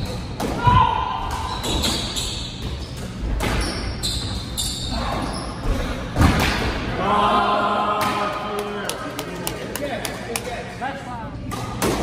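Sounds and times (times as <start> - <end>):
shoes squeaking on hardwood floor: 1.5 - 5.6
squash ball hitting walls: 6.2 - 6.8.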